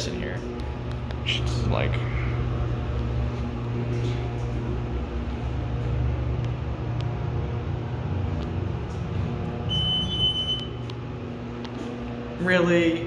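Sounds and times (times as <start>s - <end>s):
elevator hum and rumble: 0.0s - 13.0s
high electronic beep: 9.7s - 10.8s.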